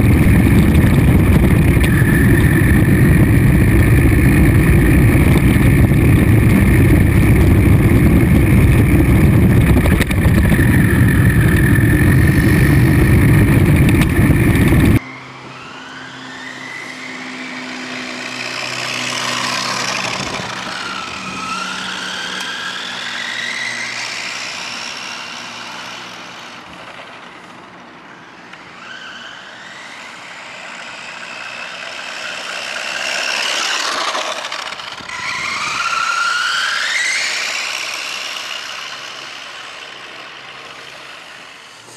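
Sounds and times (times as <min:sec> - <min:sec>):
loud low rumbling noise: 0:00.0 - 0:15.0
toy truck motor whining: 0:00.0 - 0:41.9.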